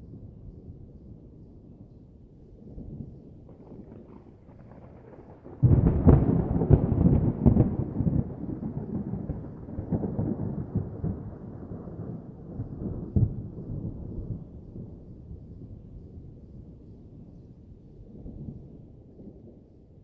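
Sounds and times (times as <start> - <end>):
thunder crash and rumble: 3.4 - 15.1.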